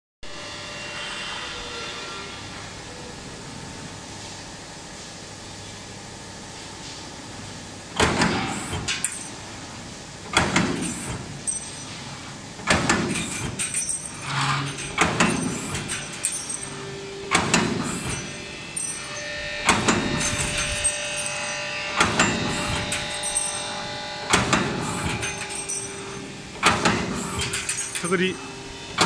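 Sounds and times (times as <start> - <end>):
punching machine clanking: 8.0 - 9.6, 10.2 - 29.0.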